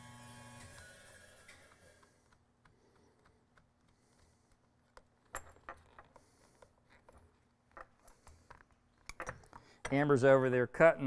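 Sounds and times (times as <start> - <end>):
screwdriver tightening clamp screw: 1.5 - 10.0.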